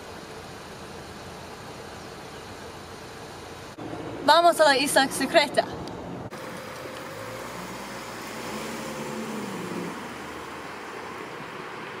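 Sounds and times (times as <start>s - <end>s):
outdoor hiss: 0.0s - 5.5s, 6.2s - 12.0s
car engine pulling away: 5.9s - 12.0s.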